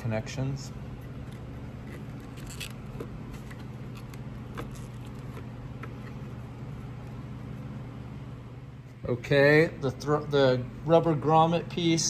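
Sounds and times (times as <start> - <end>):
steady low hum: 0.0 - 12.0
rubber grommet clicking and rubbing: 1.1 - 6.4.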